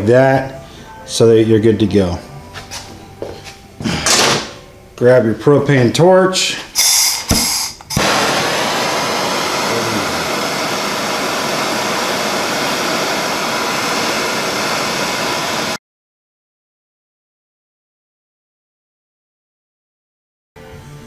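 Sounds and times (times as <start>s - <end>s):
torch flame hissing: 6.8s - 15.8s.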